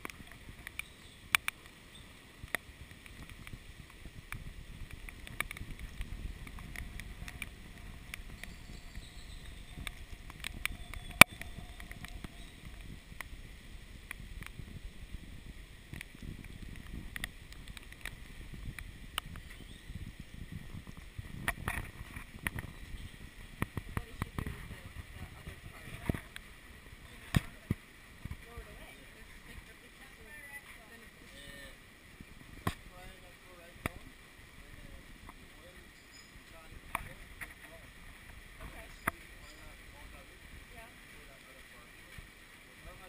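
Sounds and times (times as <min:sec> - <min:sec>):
raindrops ticking on camera: 0:00.0 - 0:31.2
wind buffeting microphone: 0:02.4 - 0:29.7.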